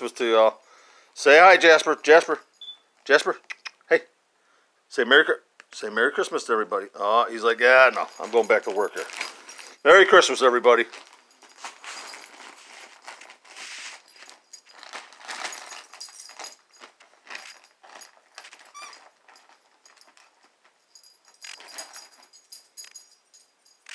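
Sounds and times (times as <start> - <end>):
gift bag crinkling and rustling: 7.4 - 23.0.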